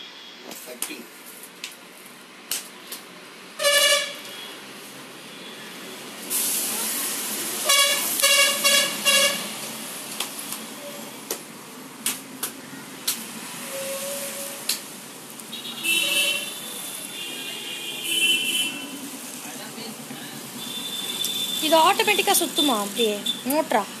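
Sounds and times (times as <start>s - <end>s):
second horn sounding: 3.6s - 4.5s, 7.6s - 9.5s
vehicle horn honking: 3.6s - 4.6s, 7.6s - 9.5s, 13.7s - 14.6s, 15.5s - 19.0s, 20.6s - 21.8s.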